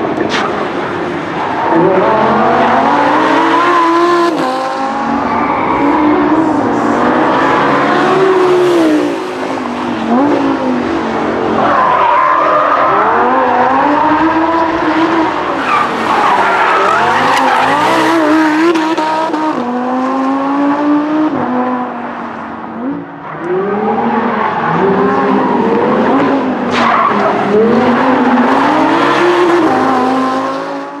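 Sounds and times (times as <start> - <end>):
car engine revving: 0.0 - 22.0, 22.7 - 31.0
tyres squealing and skidding: 5.0 - 8.8, 11.4 - 18.7, 23.3 - 30.2.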